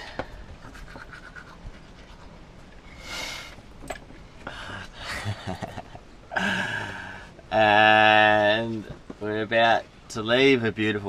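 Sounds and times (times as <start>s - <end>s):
man laughing: 4.5s - 7.2s.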